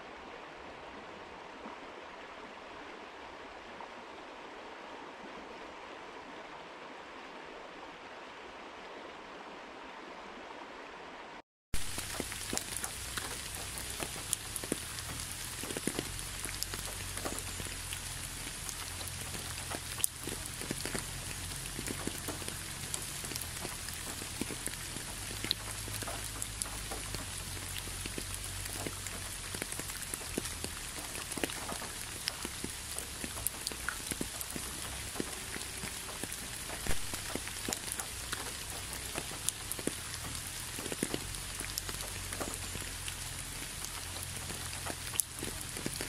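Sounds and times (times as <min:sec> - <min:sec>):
steady rain hiss: 0:00.0 - 0:46.0
raindrops tapping: 0:11.8 - 0:46.0.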